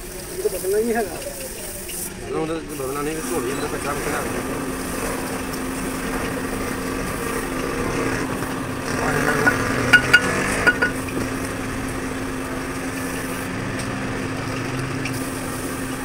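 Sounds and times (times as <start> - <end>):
mechanical hum: 0.0 - 16.0
steel parts clinking: 9.4 - 11.0.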